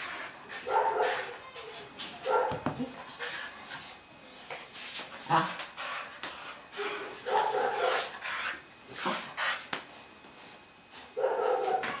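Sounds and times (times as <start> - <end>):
scuffling on tile floor: 3.2 - 8.2, 8.9 - 12.0.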